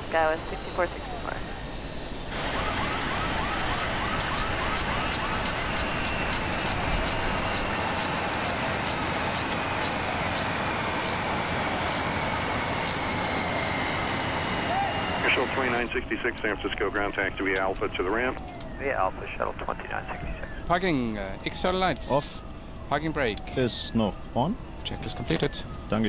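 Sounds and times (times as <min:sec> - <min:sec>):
jet engine whine: 0:00.0 - 0:26.0
broad rush of noise: 0:02.3 - 0:16.8.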